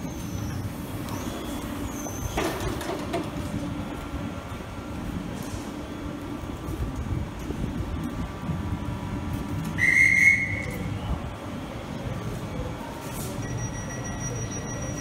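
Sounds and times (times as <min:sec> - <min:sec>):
railway whistle blast: 0:09.8 - 0:10.8.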